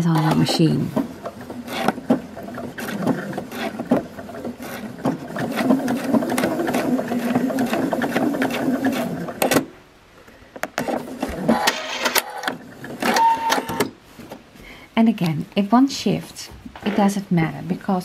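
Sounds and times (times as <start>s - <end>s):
sewing machine stitching: 0.0s - 9.7s, 10.8s - 13.9s.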